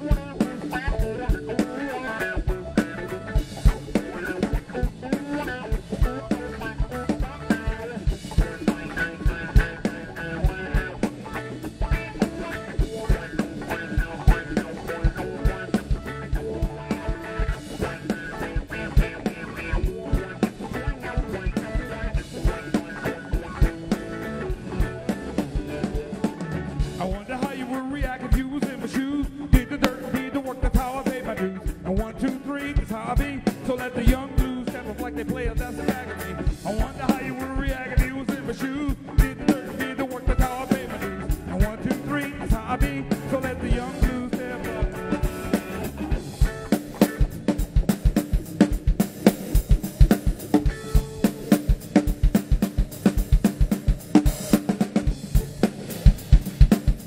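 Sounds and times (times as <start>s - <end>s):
drum kit: 0.0s - 57.0s
electric bass guitar: 0.0s - 57.0s
wavering lead line: 0.0s - 57.0s.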